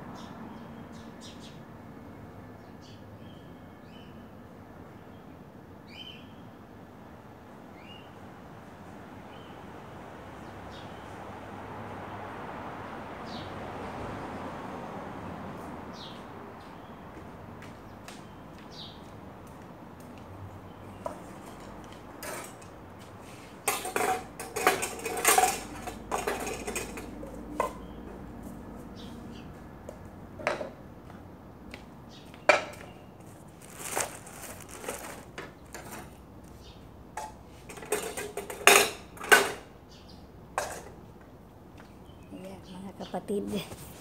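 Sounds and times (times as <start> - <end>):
dishes and cutlery clattering: 21.4 - 22.7, 23.6 - 27.9, 37.2 - 39.6, 40.6 - 41.0.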